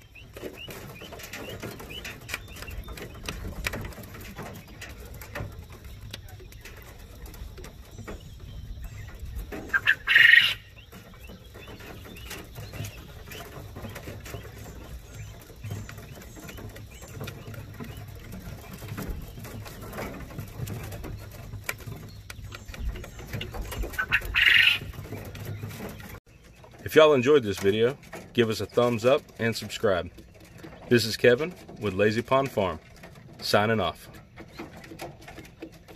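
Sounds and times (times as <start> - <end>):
quail calling: 8.1 - 20.1, 22.5 - 26.2.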